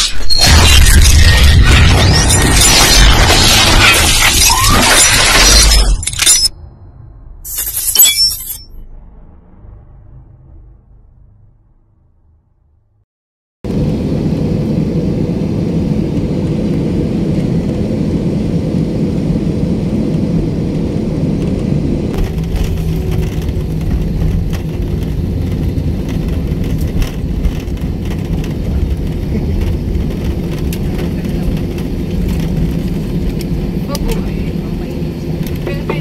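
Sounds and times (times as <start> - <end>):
jet engines roaring: 13.7 - 36.0
rattling and knocking in cabin: 22.2 - 32.6.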